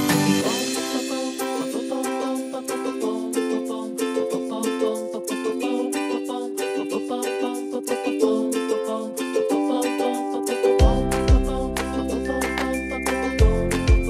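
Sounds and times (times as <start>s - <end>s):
plucked string tune: 0.0s - 14.0s
low bass: 10.8s - 14.0s.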